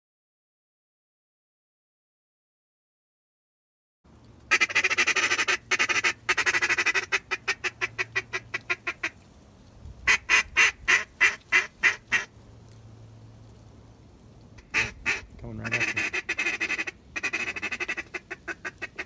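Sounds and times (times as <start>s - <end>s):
duck call quacks: 4.5s - 9.1s, 10.1s - 12.3s, 14.6s - 19.0s.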